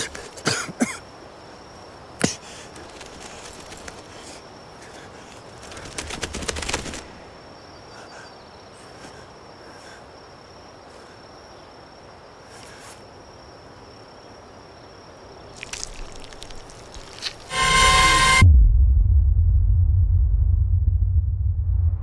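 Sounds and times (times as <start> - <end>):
outdoor night ambience: 0.0 - 22.0
crackling: 15.5 - 18.4.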